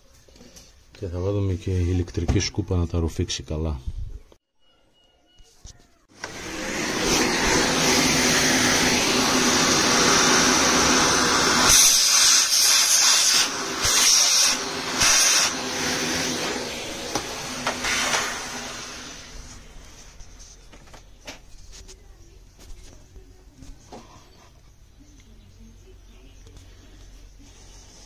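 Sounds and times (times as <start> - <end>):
vacuum cleaner sucking air: 6.2 - 20.4.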